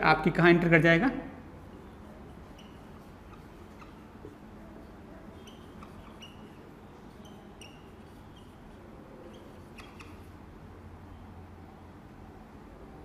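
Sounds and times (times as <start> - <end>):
faint steady low hum: 0.0 - 13.0
whiteboard marker squeaking: 1.6 - 10.4.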